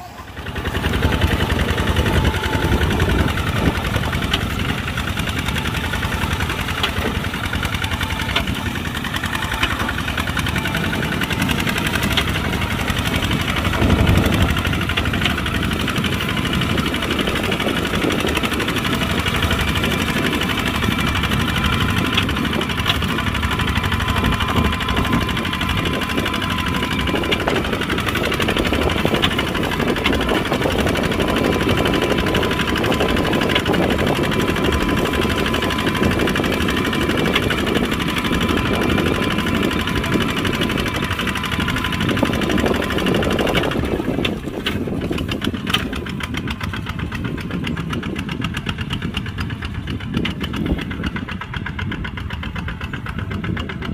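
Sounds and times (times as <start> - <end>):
diesel tractor engine knocking: 0.0 - 53.9.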